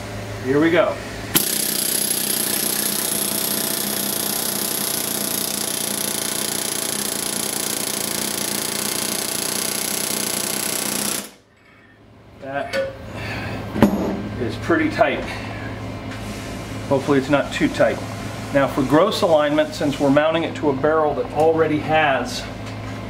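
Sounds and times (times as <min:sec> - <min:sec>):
pneumatic riveting gun hammering: 0:01.3 - 0:11.4.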